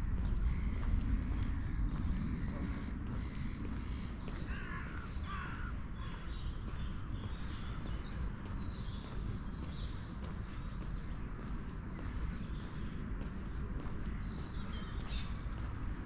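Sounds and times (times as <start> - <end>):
small birds chirping: 0.0 - 16.0
steady low rumble: 0.0 - 16.0
harsh crow-like calls: 4.5 - 6.2.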